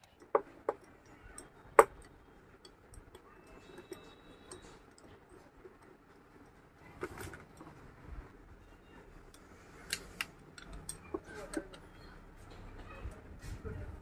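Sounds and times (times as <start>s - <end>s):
metallic clicks of nuts and spanner: 9.3s - 11.9s.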